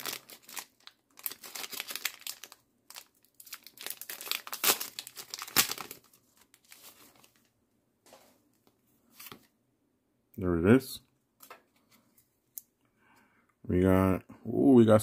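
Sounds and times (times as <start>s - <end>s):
foil wrapper ripping: 0.0s - 6.2s
foil wrapper crinkling: 0.0s - 7.4s.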